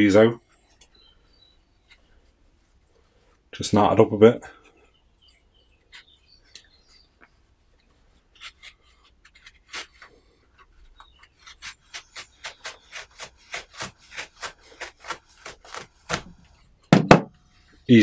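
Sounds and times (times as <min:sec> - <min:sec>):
serrated blade sawing fabric: 0:11.0 - 0:16.5.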